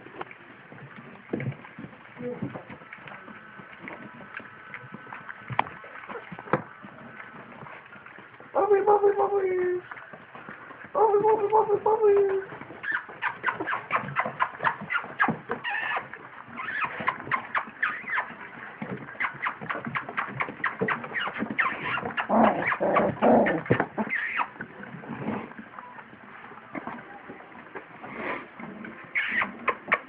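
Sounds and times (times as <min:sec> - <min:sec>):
puppies squeaking and whimpering: 0:12.2 - 0:18.5, 0:19.1 - 0:24.6, 0:29.1 - 0:30.0.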